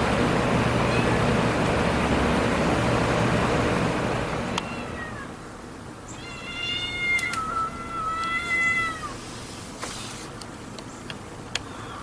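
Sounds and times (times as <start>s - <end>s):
rushing traffic noise: 0.0s - 12.0s
cat meowing: 0.9s - 1.2s, 4.6s - 5.4s, 6.1s - 9.2s.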